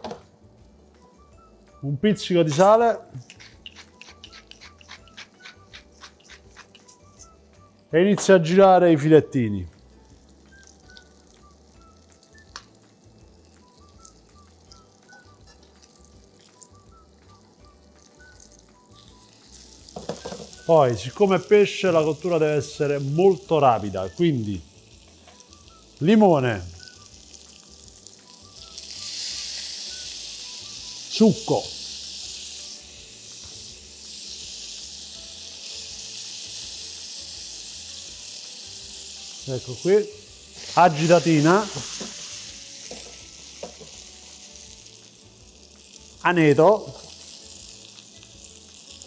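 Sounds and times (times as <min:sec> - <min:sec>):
soft background music: 0:00.0 - 0:49.0
fish frying in oil: 0:03.2 - 0:07.1, 0:09.7 - 0:49.0
lemon juice dripping into pan: 0:09.8 - 0:21.0.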